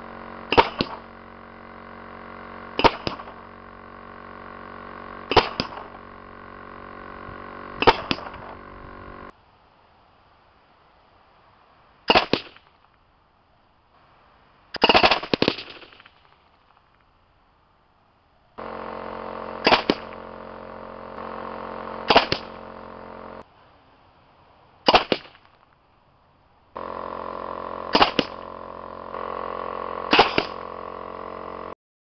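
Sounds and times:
steady hum with held tones: 0.0 - 12.0, 17.2 - 24.8, 25.8 - 31.8
pneumatic cannon firing bangs: 0.5 - 1.2, 2.8 - 3.4, 5.3 - 5.9, 19.6 - 20.1, 22.0 - 22.5, 24.9 - 25.3, 26.8 - 28.5, 29.1 - 30.8.

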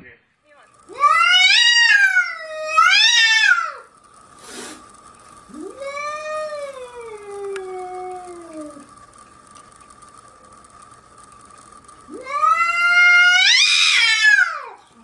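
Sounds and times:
cat yowling: 0.9 - 3.8, 12.1 - 14.7
short burst of noise: 3.4 - 5.6.

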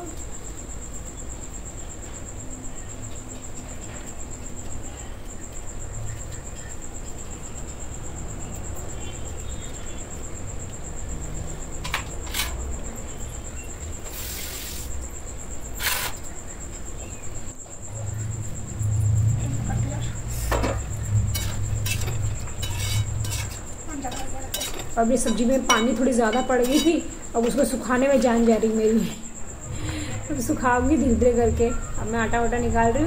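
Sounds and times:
short hiss: 14.0 - 15.0
steady low rumble: 17.7 - 24.0, 29.4 - 33.0.

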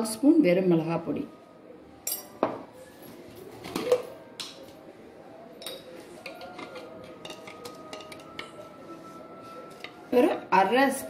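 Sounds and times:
steel kitchenware clinking: 2.0 - 2.6, 5.6 - 10.5.

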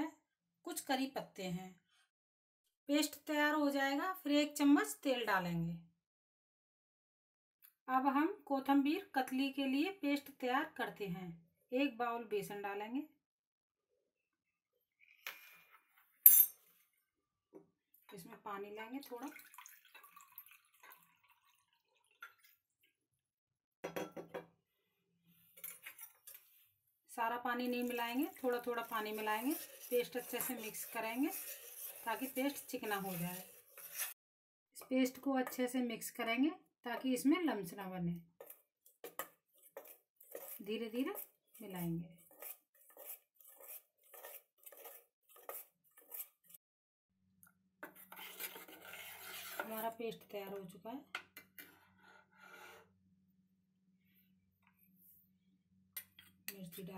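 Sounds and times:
water trickling into bowl: 19.2 - 23.0
spoon scraping batter in pot: 25.6 - 26.6, 27.6 - 34.2, 38.4 - 46.6, 47.8 - 50.3.

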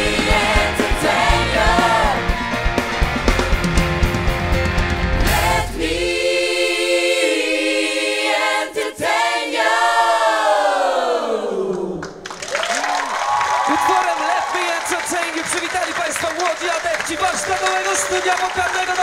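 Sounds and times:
group singing a chord: 0.0 - 2.5, 5.2 - 12.0
rock band playing: 0.0 - 5.8.

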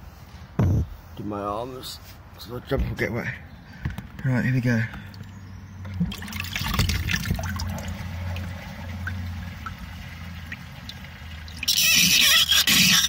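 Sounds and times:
water draining and gurgling: 5.9 - 13.0.

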